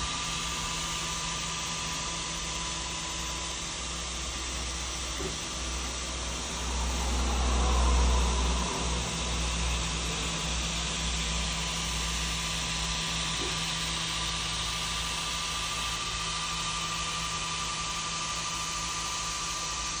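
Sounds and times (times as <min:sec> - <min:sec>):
laser engraver fans whirring: 0:00.0 - 0:20.0.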